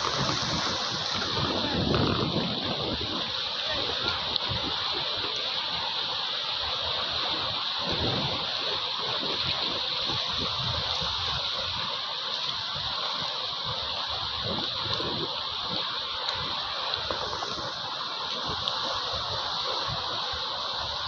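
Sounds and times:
sea surf on rocks: 0.0s - 21.0s.

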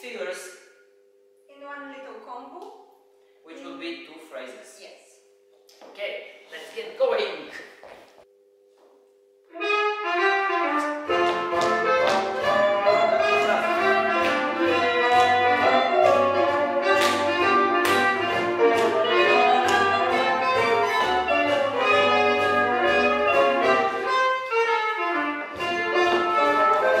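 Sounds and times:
swing jazz brass section: 9.5s - 27.0s
bass line: 11.0s - 24.3s
drums: 11.1s - 24.4s.

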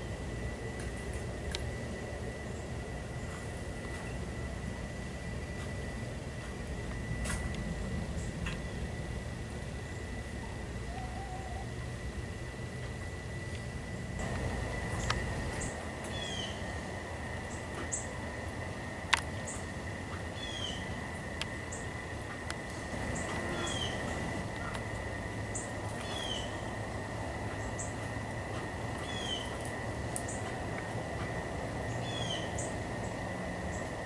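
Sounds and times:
garden birds singing: 0.0s - 34.0s
low outdoor rumble: 0.0s - 34.0s
steady high whine: 0.0s - 34.0s.

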